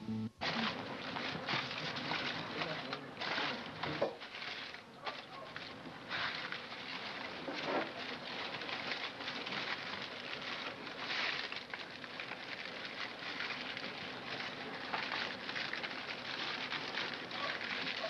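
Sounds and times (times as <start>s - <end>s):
dry leaves crackling and rustling: 0.4s - 18.0s.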